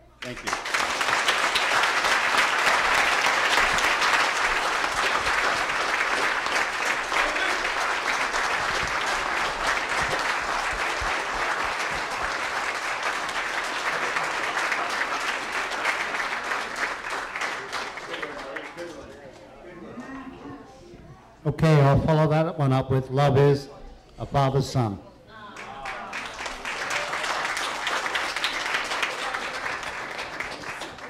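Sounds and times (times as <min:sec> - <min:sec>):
crowd applauding: 0:00.0 - 0:19.1, 0:25.6 - 0:31.0.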